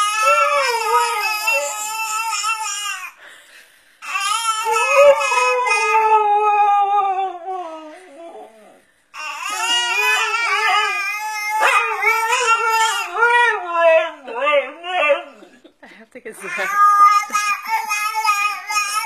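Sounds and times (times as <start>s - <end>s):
dog howling: 0.0s - 2.7s, 4.4s - 15.6s.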